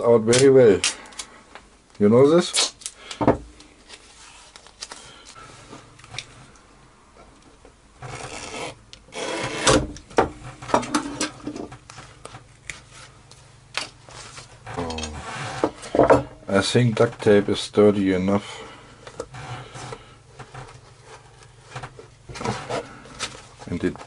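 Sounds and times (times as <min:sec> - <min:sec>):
tape crinkling: 0:03.8 - 0:05.4
tape rubbed against board: 0:08.0 - 0:09.8.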